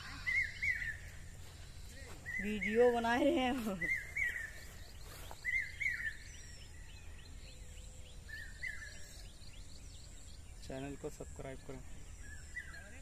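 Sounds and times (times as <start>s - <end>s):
bird warbling: 0.0s - 9.5s
low outdoor background noise: 0.0s - 13.0s.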